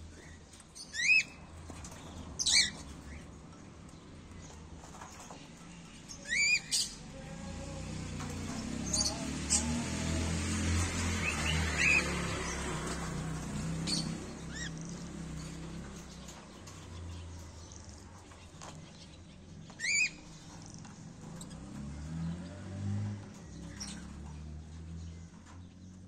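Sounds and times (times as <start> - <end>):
cockatiels chirping: 0.2 - 1.4, 19.7 - 20.2.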